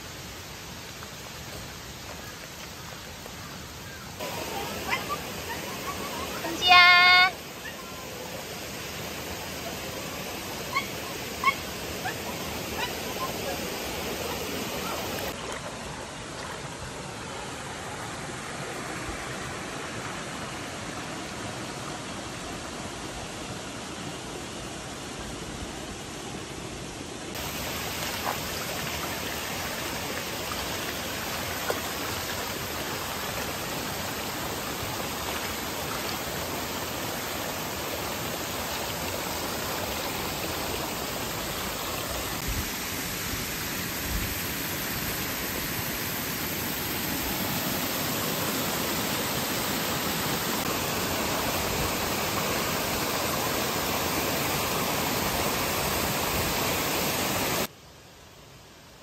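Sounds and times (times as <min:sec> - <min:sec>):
stream rushing over rocks: 0:00.0 - 0:59.0
water splashing onto stones: 0:27.4 - 0:42.4.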